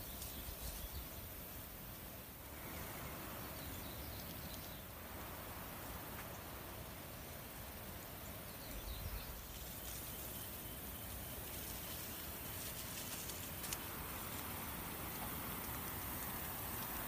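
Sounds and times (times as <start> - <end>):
faint hiss: 0.0 - 17.0.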